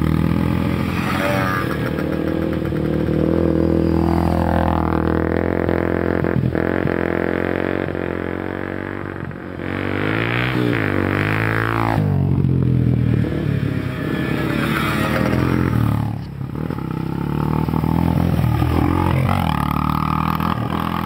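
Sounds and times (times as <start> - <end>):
dirt bike engine drone: 0.0 - 21.0.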